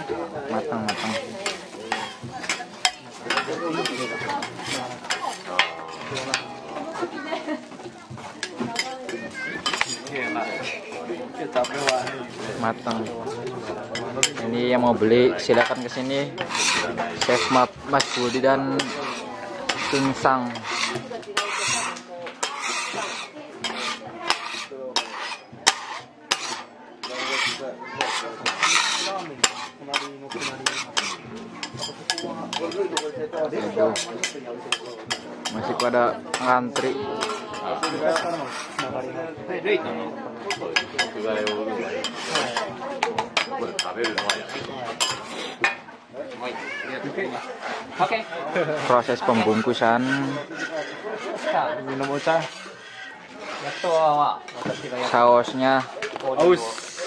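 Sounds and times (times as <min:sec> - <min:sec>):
food sizzling: 0:00.0 - 0:14.2, 0:16.0 - 0:33.2
metal spatula scraping griddle: 0:00.0 - 0:57.0.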